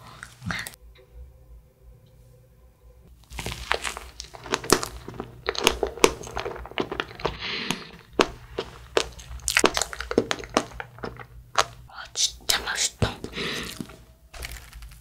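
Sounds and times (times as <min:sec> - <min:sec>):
chewing mouth sounds: 0:03.3 - 0:15.0.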